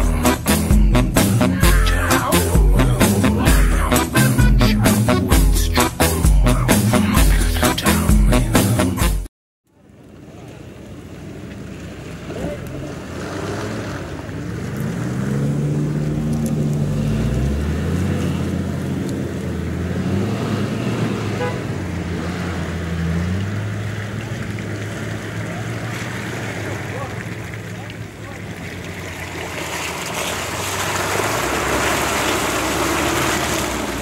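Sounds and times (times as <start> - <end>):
vehicle engines running: 0.0 - 8.9, 9.7 - 34.0.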